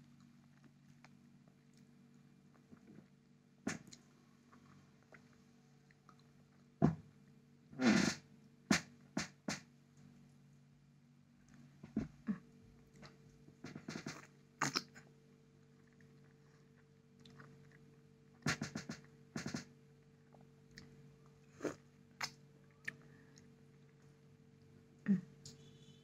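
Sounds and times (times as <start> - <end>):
wet chewing mouth clicks: 14.0 - 15.0.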